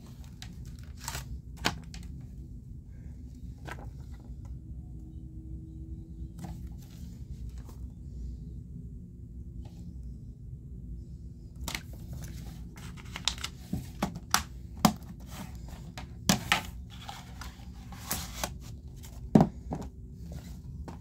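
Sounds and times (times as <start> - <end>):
plastic cases clicking and knocking: 13.0 - 15.2, 15.9 - 16.8.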